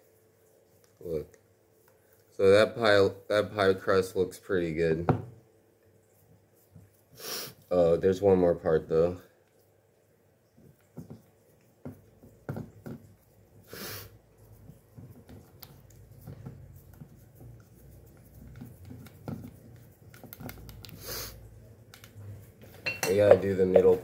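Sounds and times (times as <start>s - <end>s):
fingers tapping and scraping dough: 10.5s - 13.6s, 14.2s - 24.0s
person breathing: 13.7s - 14.2s, 21.0s - 21.4s.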